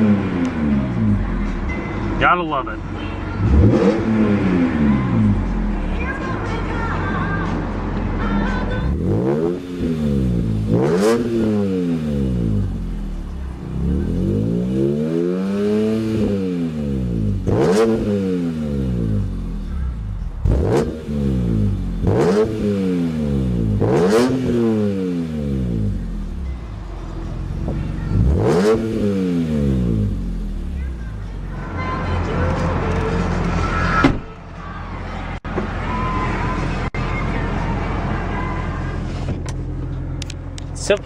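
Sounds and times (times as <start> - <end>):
car engine revving: 0.0 - 41.0.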